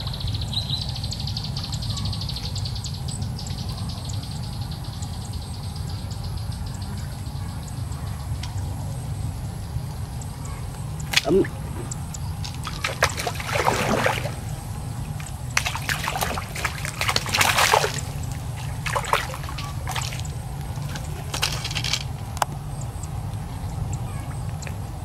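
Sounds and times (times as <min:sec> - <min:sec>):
steady low rumble: 0:00.0 - 0:25.0
water splashing and sloshing: 0:11.0 - 0:22.5.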